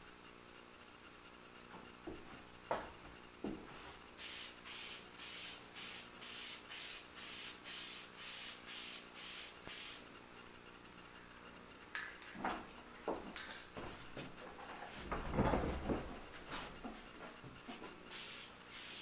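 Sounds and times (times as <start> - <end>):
aerosol can hissing: 4.2 - 10.0, 18.1 - 19.0.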